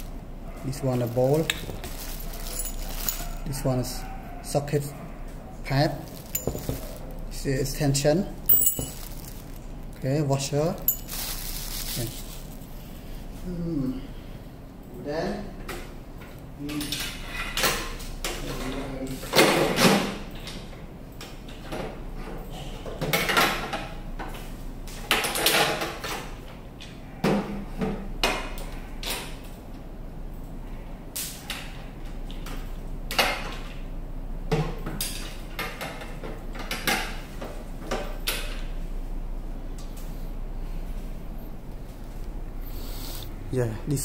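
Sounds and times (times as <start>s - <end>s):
low steady hum: 0.0s - 17.0s, 37.3s - 44.0s
metal parts knocking and clinking: 1.0s - 3.5s, 6.1s - 7.1s, 8.5s - 9.5s, 10.8s - 11.4s.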